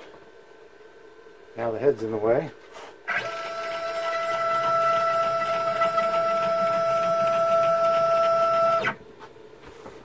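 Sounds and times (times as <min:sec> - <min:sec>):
stepper motors whining: 0:03.1 - 0:09.0.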